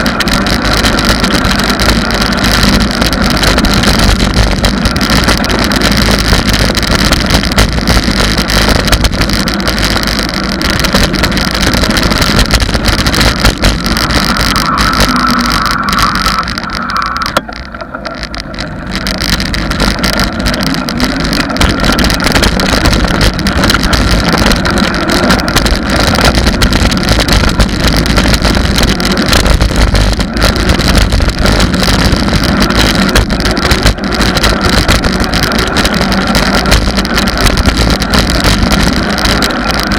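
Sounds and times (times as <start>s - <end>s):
rattling from road surface: 0.0s - 39.9s
wind buffeting microphone: 0.0s - 39.9s.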